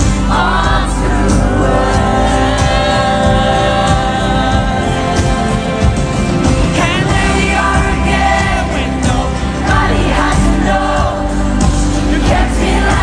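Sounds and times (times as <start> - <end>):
acoustic guitar and band: 0.0 - 13.0.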